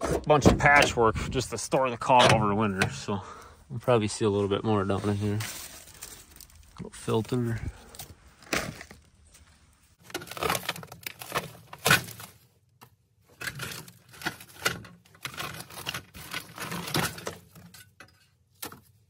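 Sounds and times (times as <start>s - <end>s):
hands rummaging through dry debris: 4.8s - 12.6s, 13.3s - 18.0s.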